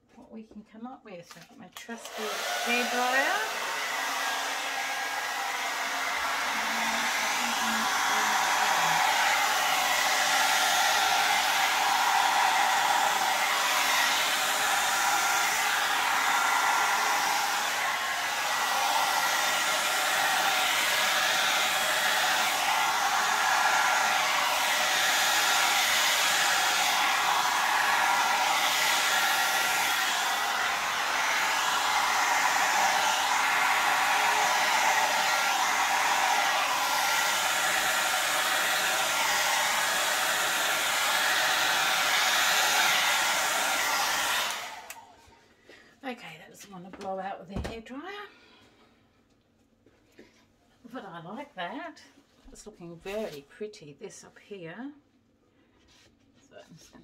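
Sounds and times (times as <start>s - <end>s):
hair dryer running: 1.8s - 45.8s.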